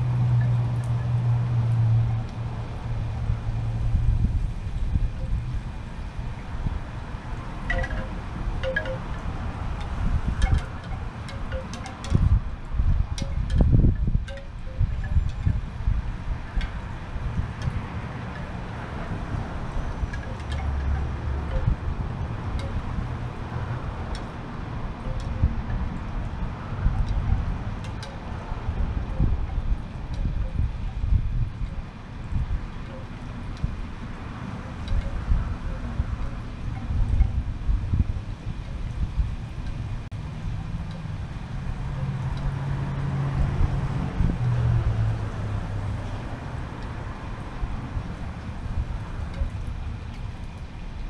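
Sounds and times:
vehicle engine humming: 0.0s - 12.7s, 30.9s - 51.0s
outdoor background noise: 0.0s - 51.0s
wind buffeting microphone: 0.0s - 51.0s.

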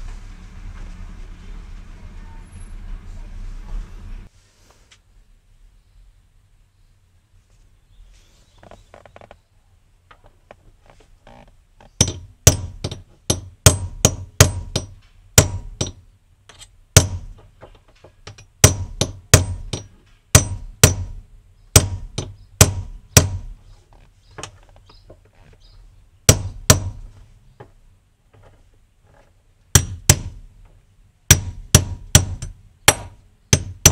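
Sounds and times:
hammer tapping metal rod: 12.0s - 16.0s.

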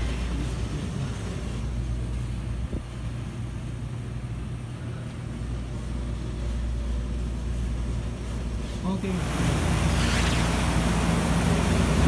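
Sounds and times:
air conditioner fan humming: 0.0s - 12.0s.

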